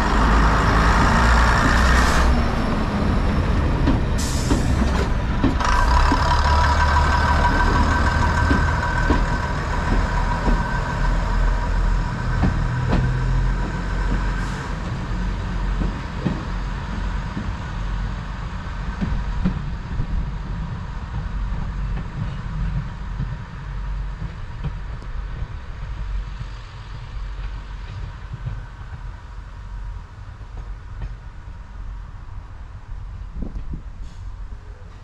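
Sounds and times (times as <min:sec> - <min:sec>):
diesel train rumble: 0:00.0 - 0:35.0.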